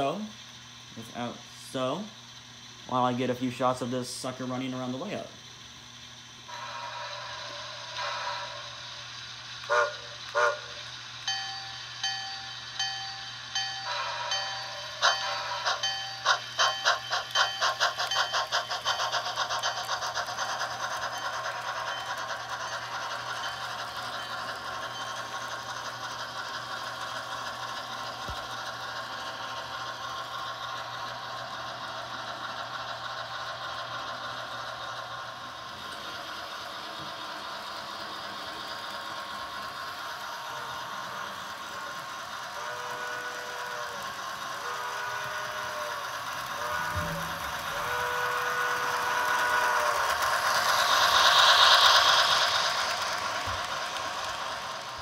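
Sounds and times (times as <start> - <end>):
steam locomotive chuffing: 0.0 - 55.0
wheels rattling on track: 0.0 - 55.0
train whistle blast: 9.6 - 11.5, 42.5 - 50.2
locomotive bell ringing: 11.2 - 31.0, 40.4 - 53.4.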